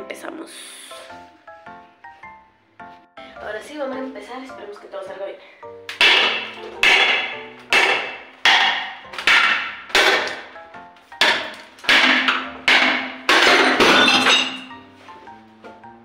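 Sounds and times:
hammer smashing ceramic sink: 5.9s - 10.6s, 11.2s - 14.7s.

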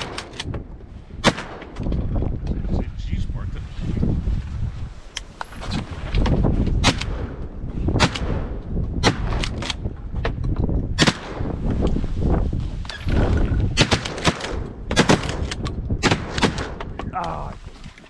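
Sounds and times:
shotgun blasts: 1.2s - 1.8s, 6.8s - 9.7s, 11.0s - 11.6s, 13.2s - 16.8s.

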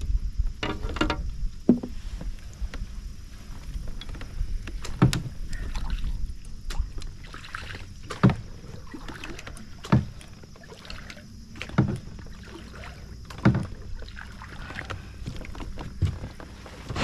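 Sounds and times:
kayak paddle knocking: 0.6s - 2.0s
water splashing: 4.8s - 17.0s.

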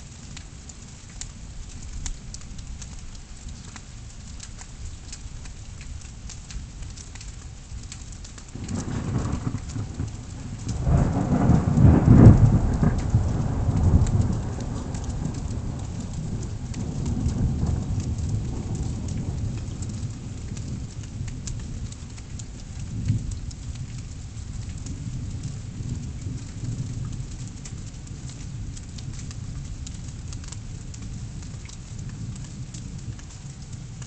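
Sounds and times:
pattering raindrops: 0.0s - 34.0s
steady rain: 0.0s - 34.0s
thunder clap and rumbles: 8.6s - 21.9s.

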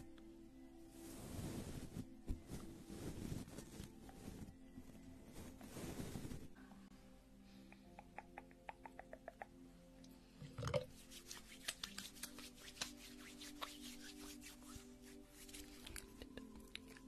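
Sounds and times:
faint background music: 0.0s - 17.0s
light finger ticks: 7.7s - 10.2s.

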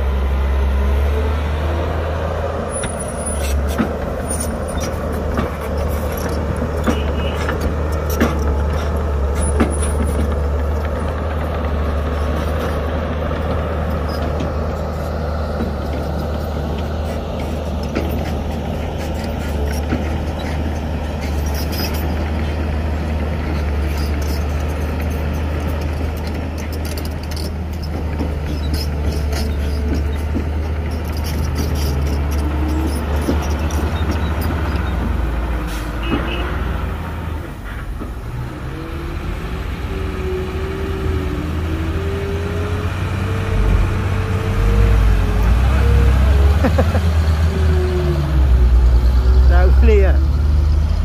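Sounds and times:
diesel machinery engine drone: 0.0s - 51.0s
metal clanks: 23.5s - 36.3s.

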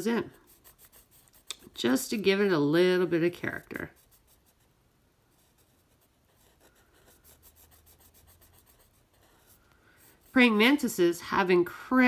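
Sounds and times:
pen scratching on paper: 0.0s - 2.4s, 3.6s - 4.7s, 5.3s - 11.0s.

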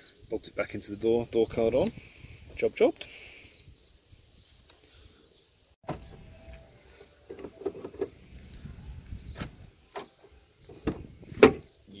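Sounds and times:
car door latch clicking: 5.9s - 6.2s.

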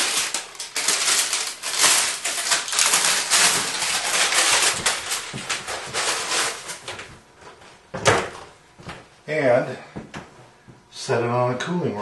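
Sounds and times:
parchment paper crackling: 0.0s - 7.1s.

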